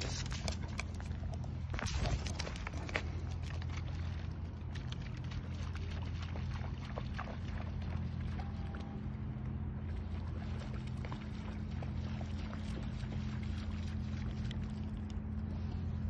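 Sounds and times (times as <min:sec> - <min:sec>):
low engine hum: 0:00.0 - 0:16.0
dog splashing in water: 0:01.7 - 0:08.7.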